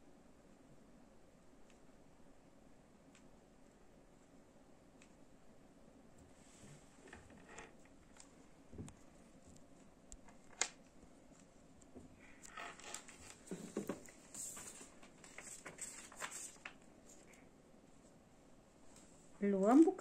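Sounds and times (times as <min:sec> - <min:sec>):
paper rustling: 0:12.7 - 0:17.5.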